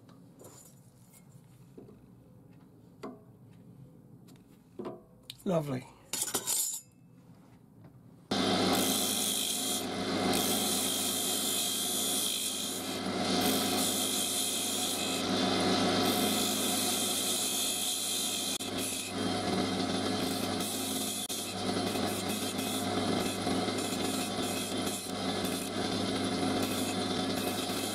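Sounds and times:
gouge scraping spinning wood: 8.3 - 27.9
wood lathe humming: 8.3 - 27.9.

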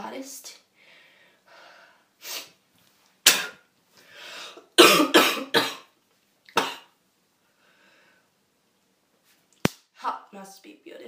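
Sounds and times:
person coughing: 4.8 - 5.9, 6.6 - 6.9.

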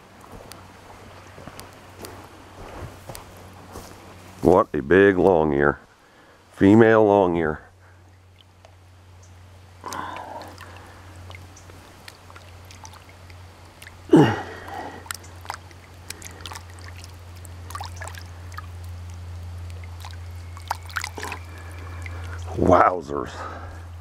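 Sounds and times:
steady low hum: 0.0 - 24.0
water dripping: 7.9 - 22.6
hands splashing in water: 9.9 - 22.5.

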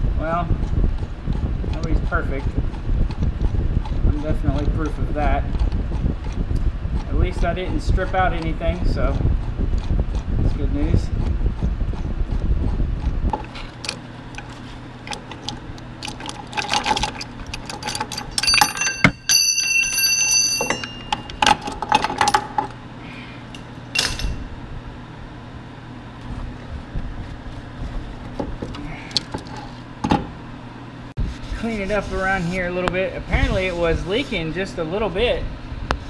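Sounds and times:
metal tools clinking: 14.4 - 22.7, 23.5 - 24.4
ringing bell-like metal note: 18.3 - 21.5.

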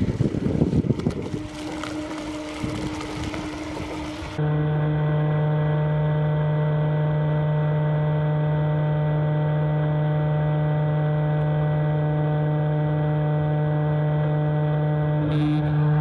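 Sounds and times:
electric motor humming: 0.0 - 5.2, 14.2 - 16.0.

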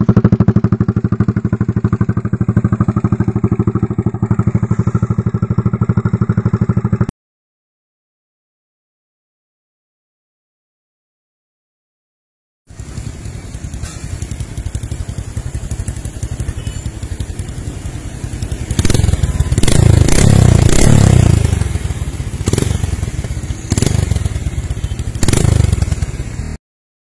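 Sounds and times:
motorcycle engine idling and revving: 0.0 - 7.1, 12.7 - 26.6
exhaust cracks: 12.7 - 26.4.

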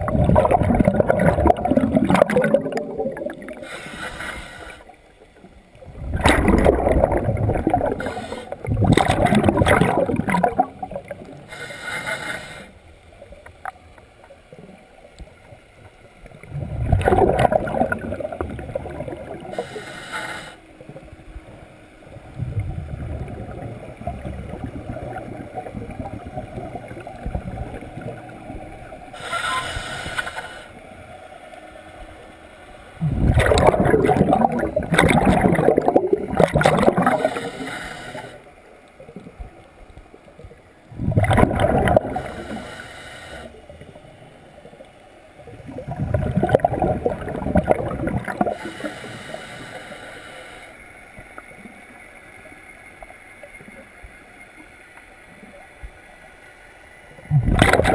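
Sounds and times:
bubbling exhaled air: 0.0 - 5.0, 5.8 - 12.7, 16.5 - 20.6, 22.3 - 30.6, 33.0 - 38.4, 40.9 - 43.6, 45.5 - 50.0, 57.3 - 57.9
hissing regulator inhalations: 3.5 - 5.0, 7.9 - 8.7, 11.4 - 12.9, 19.4 - 20.8, 29.1 - 30.8, 37.0 - 38.6, 42.0 - 43.7, 48.4 - 51.0.

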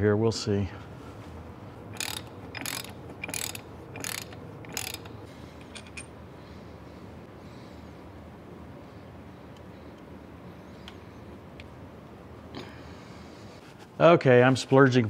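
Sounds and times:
ratchet wrench clicking: 1.9 - 6.0.

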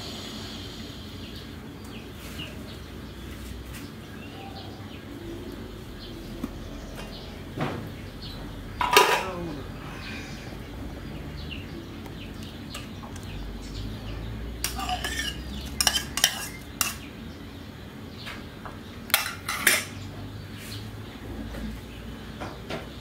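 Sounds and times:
low steady background noise: 0.0 - 23.0
spoon clinking against a bowl: 14.6 - 17.0
spoon scraping metal pot rim: 14.6 - 17.0.

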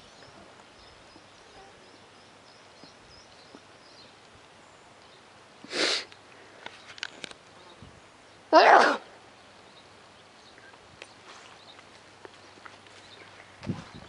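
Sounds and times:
faint bird chirps: 7.6 - 11.8
loud sneeze: 8.5 - 9.1.

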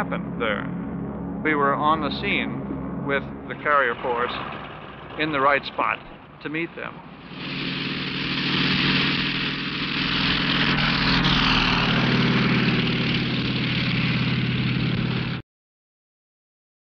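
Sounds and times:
propeller plane engine droning: 0.0 - 15.4
propeller wash rushing: 0.0 - 15.4.

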